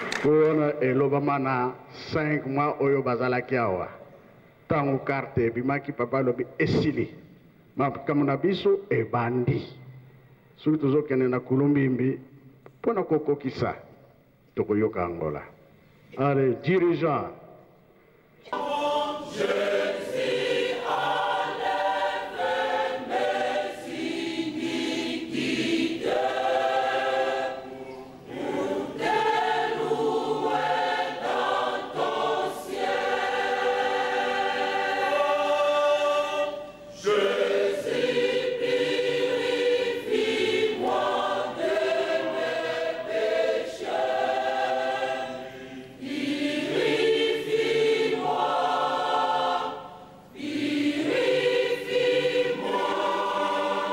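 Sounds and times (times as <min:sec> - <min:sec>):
choir singing a hymn: 0:18.4 - 0:53.9.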